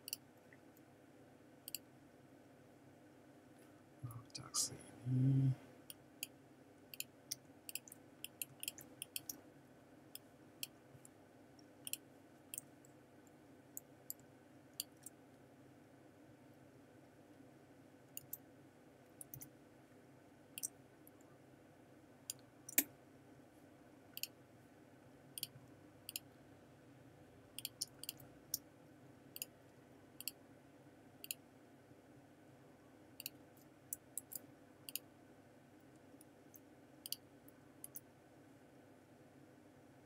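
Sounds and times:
computer mouse clicks: 0.0 - 0.2, 1.6 - 1.9, 5.9 - 9.4, 11.8 - 12.7, 13.8 - 15.2, 18.1 - 18.4, 19.2 - 19.5, 24.2 - 24.4, 25.4 - 26.3, 27.6 - 28.7, 29.3 - 29.6, 30.2 - 30.4, 31.2 - 31.4, 33.2 - 35.1, 36.2 - 37.2, 37.8 - 38.1
faint steady hum: 0.0 - 40.0.

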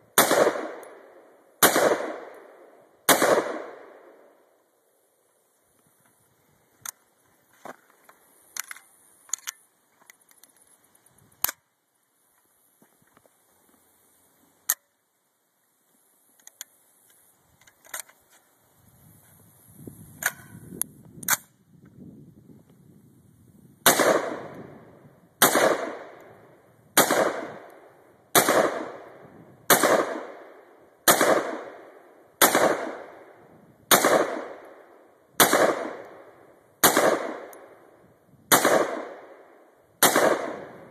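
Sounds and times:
rifle gunshots with echo: 0.1 - 4.3, 23.8 - 26.3, 27.0 - 37.8, 38.5 - 40.9
metallic clicks of rifle handling: 7.6 - 11.7, 16.4 - 18.4, 20.2 - 21.5.

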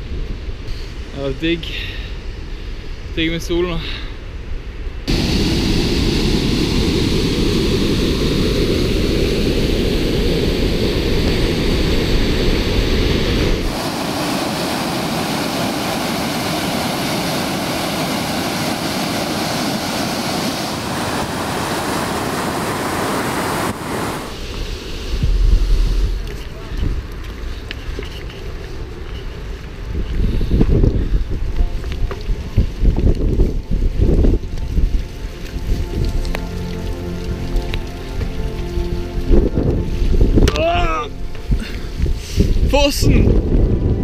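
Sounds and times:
wind buffeting microphone: 4.4 - 44.0
rushing stream water: 5.1 - 27.4, 31.4 - 44.0.

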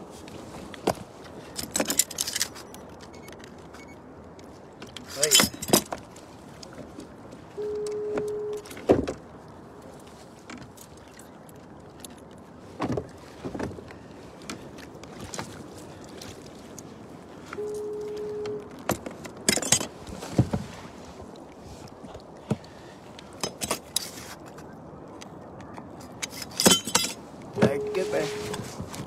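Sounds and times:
electronic beeps: 7.6 - 8.6, 17.6 - 18.7, 27.6 - 28.6.

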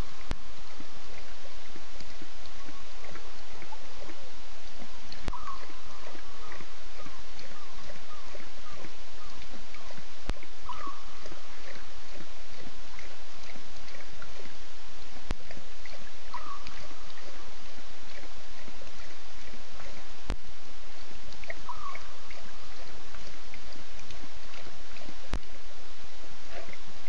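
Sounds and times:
steady hiss: 0.0 - 27.0.

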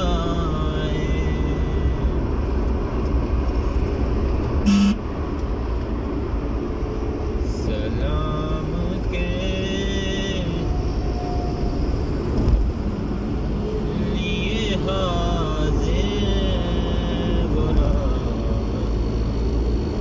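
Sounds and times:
car engine and road rumble: 0.0 - 20.0
car horn toot: 4.6 - 5.1.

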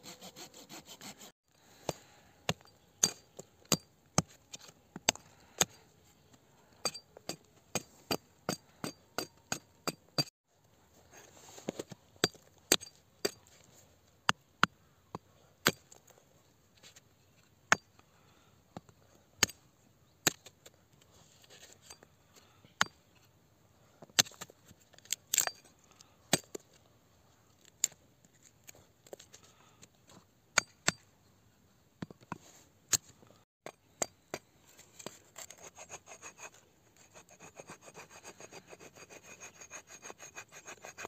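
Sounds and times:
hatchet chopping wood: 30.6 - 31.0.

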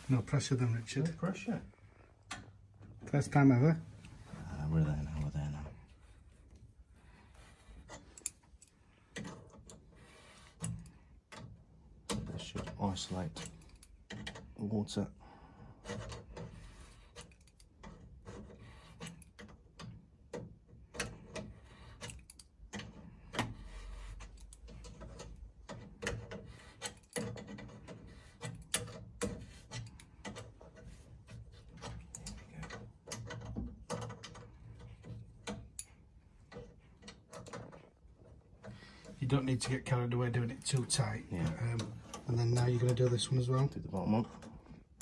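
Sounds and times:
spanner scraping on metal valve: 21.0 - 37.9.

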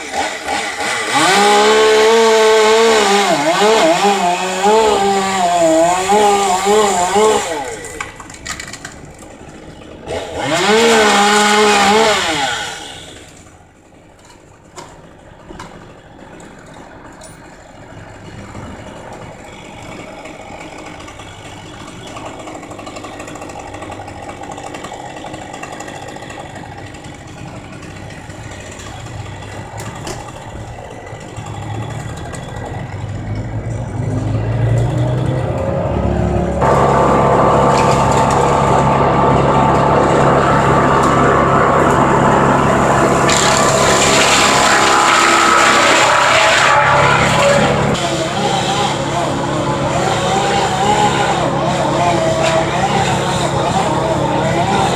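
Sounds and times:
chainsaw revving through cut: 0.0 - 13.4, 18.6 - 54.9
engine running steadily: 2.7 - 54.9.

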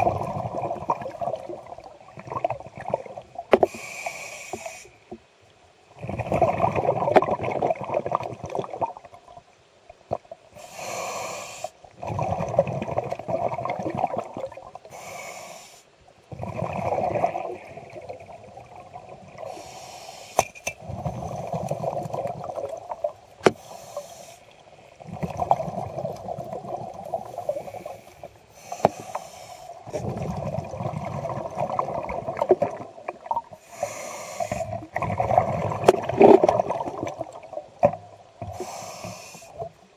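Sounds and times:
bubbling exhalations underwater: 0.0 - 3.2, 6.0 - 9.1, 12.0 - 14.8, 16.3 - 19.5, 20.8 - 23.1, 25.0 - 27.4, 29.9 - 33.5, 34.6 - 37.6
hissing regulator inhalations: 3.6 - 5.0, 10.6 - 11.8, 14.9 - 15.9, 19.4 - 20.6, 23.4 - 24.6, 27.3 - 30.0, 33.6 - 34.8, 38.4 - 39.7.

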